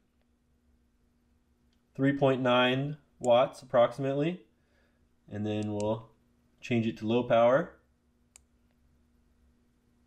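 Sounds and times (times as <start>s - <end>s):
faint low hum: 0.0s - 10.0s.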